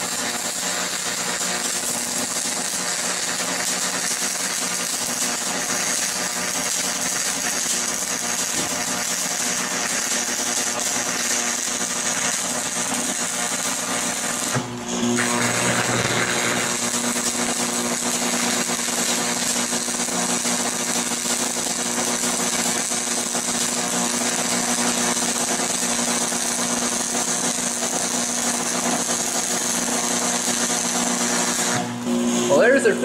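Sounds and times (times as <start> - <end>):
welding arc crackling sizzle: 0.0 - 33.0.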